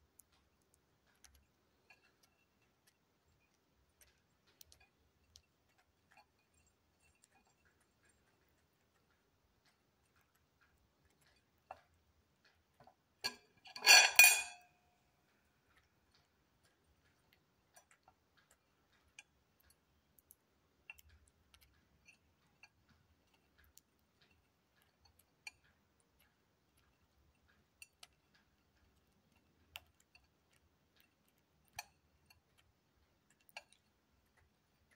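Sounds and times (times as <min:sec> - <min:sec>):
metal fork clattering on plate: 0:13.2 - 0:14.8
beak tapping on ceramic plate: 0:15.6 - 0:34.9.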